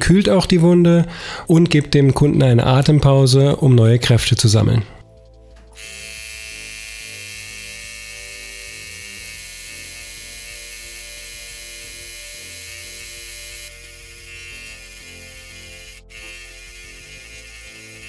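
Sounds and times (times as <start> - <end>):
tattoo machine humming: 5.8 - 18.0.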